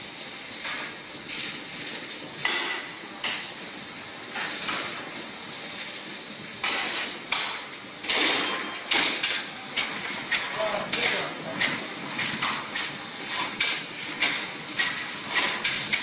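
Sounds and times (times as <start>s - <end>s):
wrapping machine humming: 7.8s - 16.0s.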